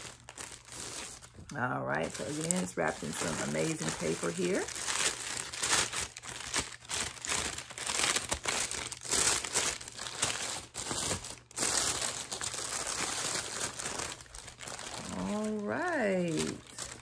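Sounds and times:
paper wrapping crinkling: 0.0 - 17.0.

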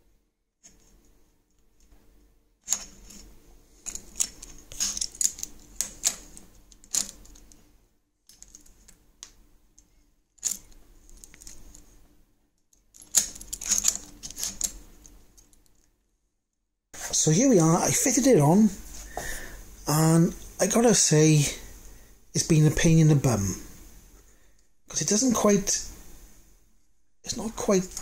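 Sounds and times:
metal brackets clicking and rattling: 3.8 - 7.6, 10.4 - 11.8, 12.9 - 15.6.

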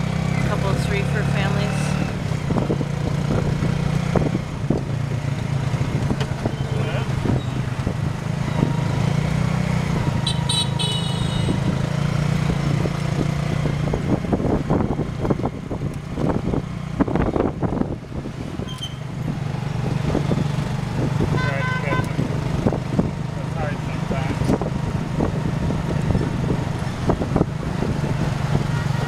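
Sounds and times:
motorbike engine running: 0.0 - 29.0
vehicle horn beeping: 10.2 - 11.7, 21.3 - 22.2.

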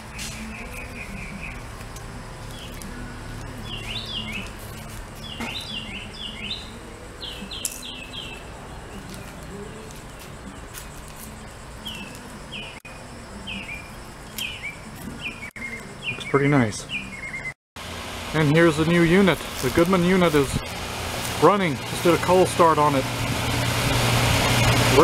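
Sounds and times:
heat pump humming: 0.0 - 16.2, 17.8 - 25.0
birds chirping: 0.0 - 17.6.

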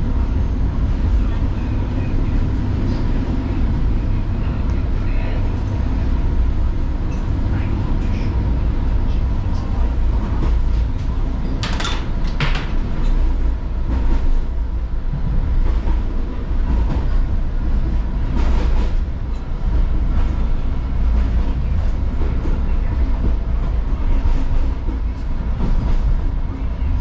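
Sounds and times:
train wheels rumbling on track: 0.0 - 27.0.

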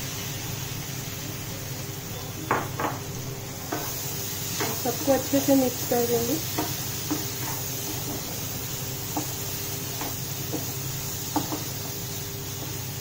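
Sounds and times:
spatula knocking and scraping pan: 3.7 - 5.5, 6.4 - 8.4, 9.1 - 12.0.

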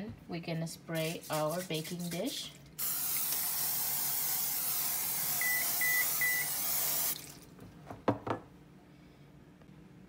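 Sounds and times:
aerosol spray hissing: 1.0 - 2.2, 2.8 - 7.2
short electronic beeps: 5.4 - 6.6.

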